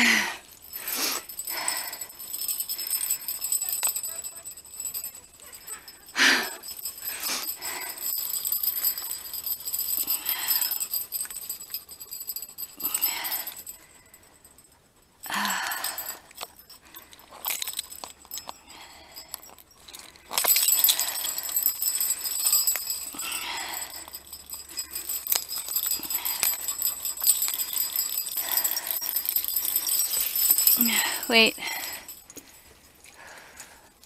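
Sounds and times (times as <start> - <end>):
dog tags and clips jingling: 0.0 - 34.0.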